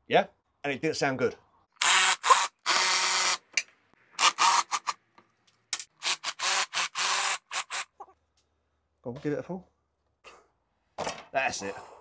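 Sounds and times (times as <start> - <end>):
cordless drill bursts: 1.8 - 3.4, 4.2 - 4.9, 6.0 - 7.9.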